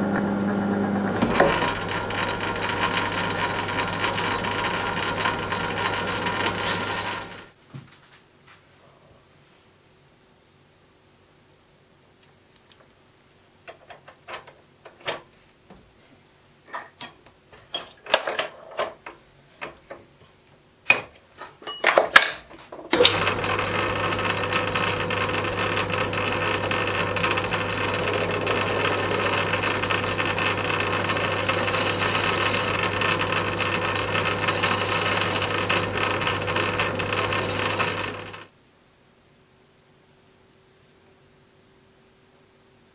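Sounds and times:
metal lathe humming: 0:00.0 - 0:07.5, 0:23.0 - 0:38.5.

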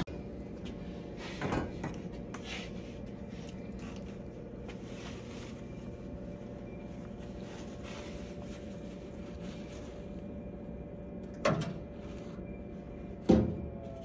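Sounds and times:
low mechanical drone: 0:00.0 - 0:14.0
cloth rag rustling: 0:02.4 - 0:10.6.

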